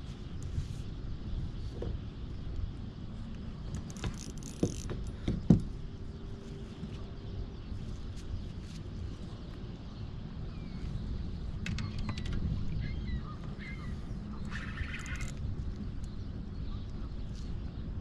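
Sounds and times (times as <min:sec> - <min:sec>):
fishing reel clicking: 0:14.5 - 0:15.4.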